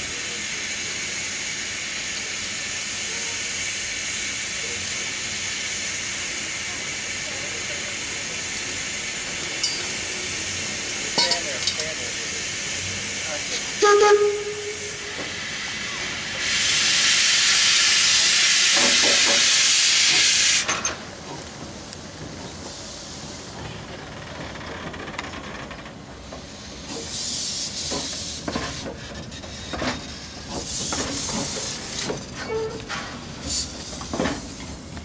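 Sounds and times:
steam locomotive hissing: 0.0s - 24.1s, 26.0s - 35.0s
metallic clanks: 9.6s - 10.0s.

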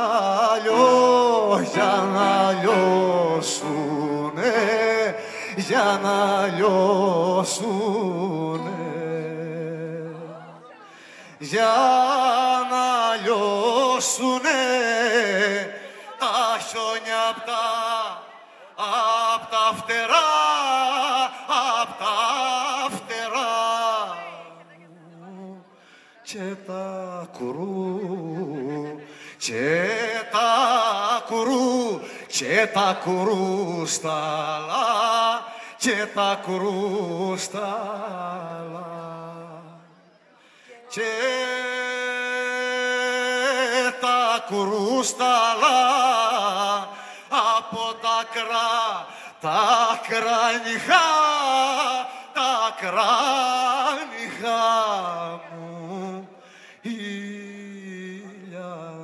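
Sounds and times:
man singing with vibrato: 0.0s - 59.0s
singer breathing: 5.1s - 5.6s, 10.8s - 11.4s, 15.7s - 16.2s, 25.6s - 26.2s, 29.0s - 29.4s, 32.0s - 32.3s, 35.4s - 35.8s, 40.2s - 40.9s, 46.9s - 47.3s, 49.0s - 49.4s, 52.0s - 52.4s, 56.3s - 56.9s.

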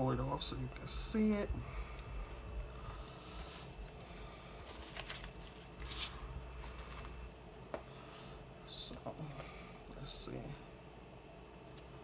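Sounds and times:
paper rustling: 3.0s - 7.2s.

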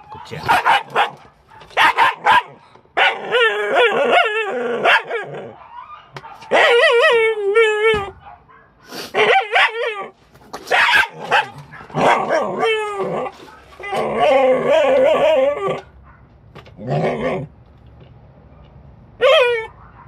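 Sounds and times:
dog whining: 1.8s - 8.2s, 9.2s - 16.0s, 19.2s - 19.9s.

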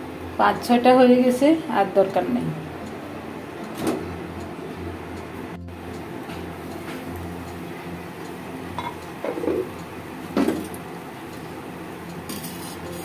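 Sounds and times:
steady low hum: 0.0s - 13.0s
clay lid knocking on clay pan: 8.8s - 9.7s
spatula scraping clay pan: 12.3s - 13.0s.

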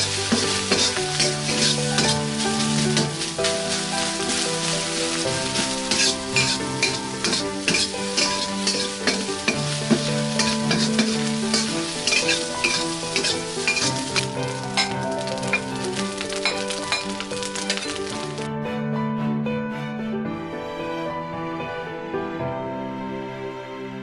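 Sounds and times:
spatula scraping pan: 0.0s - 18.1s
rice sizzling in a wok: 0.0s - 18.5s.

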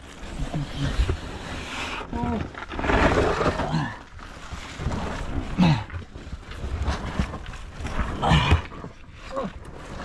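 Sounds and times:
grunts of effort: 5.5s - 6.0s, 8.1s - 9.6s.

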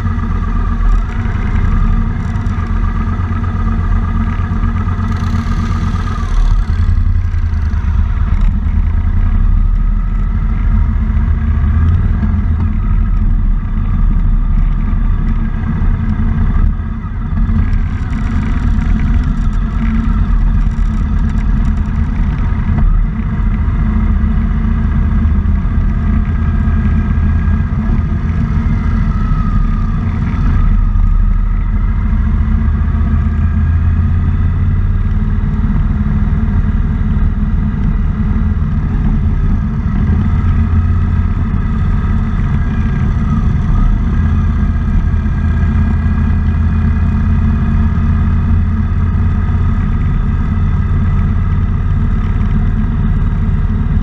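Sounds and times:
motorcycle engine rumbling: 0.0s - 54.0s.

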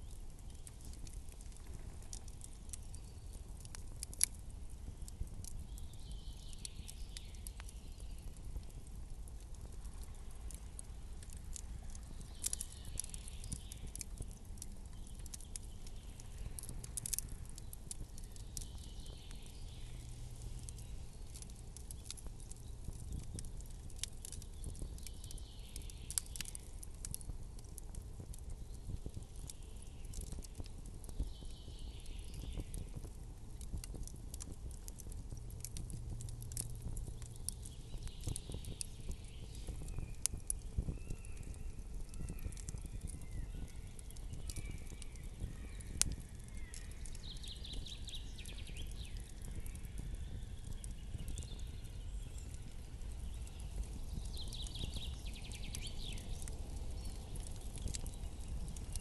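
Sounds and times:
soft hiss: 0.0s - 51.2s
campfire crackling and popping: 0.0s - 59.0s
low steady rumble: 15.5s - 24.8s.

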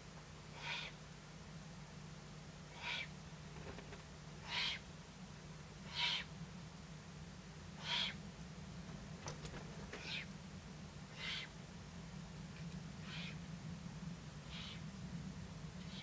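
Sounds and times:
owlet hissing begging call: 0.6s - 1.0s, 2.7s - 3.1s, 4.4s - 4.8s, 5.9s - 6.3s, 7.8s - 8.2s, 11.1s - 11.5s, 13.0s - 13.4s, 14.5s - 14.8s.

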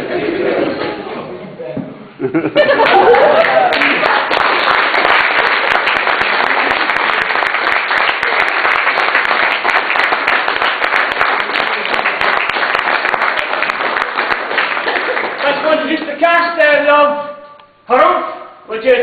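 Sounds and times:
audience applauding: 2.8s - 16.0s.

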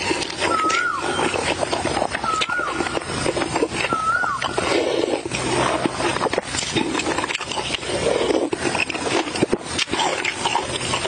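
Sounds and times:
wet chewing and lip-smacking: 0.0s - 11.0s
soup slurped from a spoon: 3.6s - 11.0s.

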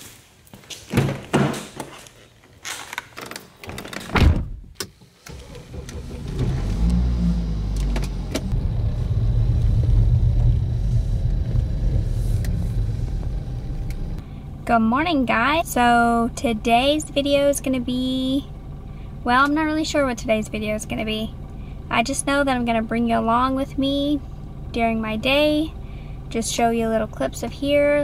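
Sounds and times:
car engine starting and running: 3.8s - 28.0s
car door shutting: 4.0s - 14.2s.

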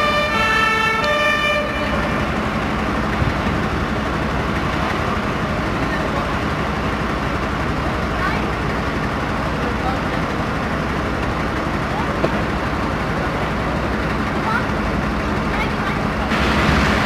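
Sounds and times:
two-tone siren: 0.0s - 2.4s
traffic on a wet street: 0.0s - 17.0s.

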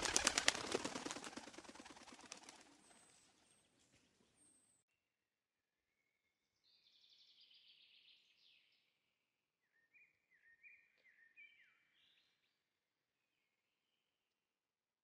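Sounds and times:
bird chirping: 9.6s - 12.5s.

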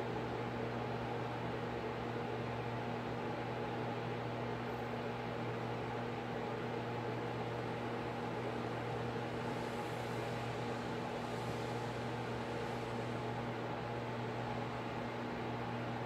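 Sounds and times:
mechanical hum: 0.0s - 16.0s.

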